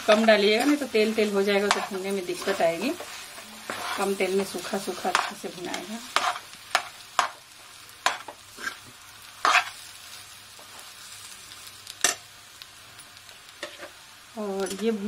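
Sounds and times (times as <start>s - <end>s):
potatoes sizzling: 0.0s - 15.0s
steel spoon scraping metal pan: 1.6s - 4.2s.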